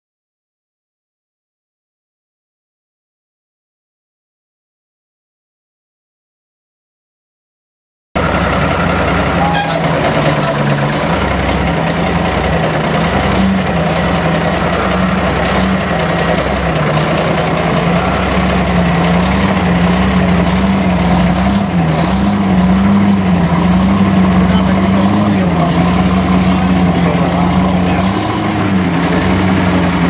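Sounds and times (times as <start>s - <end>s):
truck engine idling: 8.2s - 30.0s.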